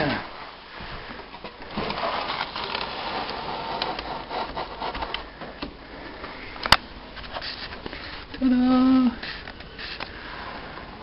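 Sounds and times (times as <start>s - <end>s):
rubbing and scraping: 0.8s - 5.6s, 7.1s - 8.4s, 9.1s - 11.0s.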